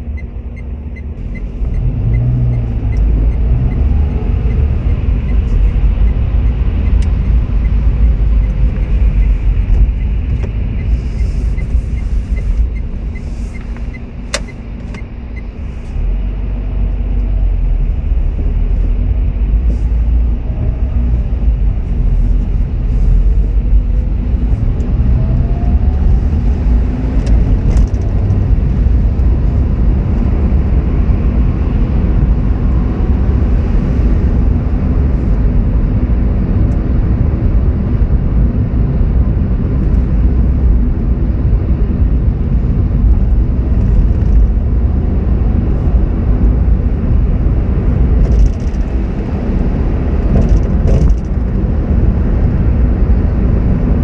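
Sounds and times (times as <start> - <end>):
car engine and tyres rumbling: 0.0 - 54.0.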